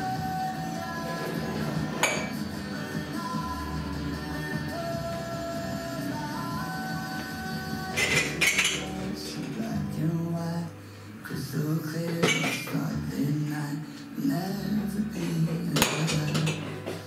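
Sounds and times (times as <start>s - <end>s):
music with singing: 0.0s - 17.0s
crockery clinking: 2.0s - 2.4s, 8.0s - 9.6s, 12.2s - 12.8s, 15.8s - 16.8s.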